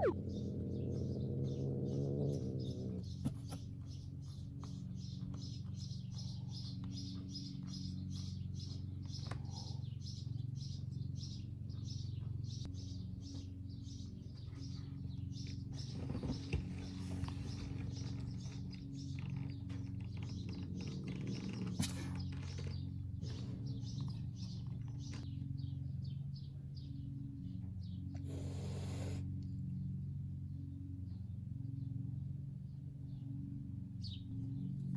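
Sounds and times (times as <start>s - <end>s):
high-pitched chirping: 0.0s - 0.2s
steady low hum: 0.0s - 34.9s.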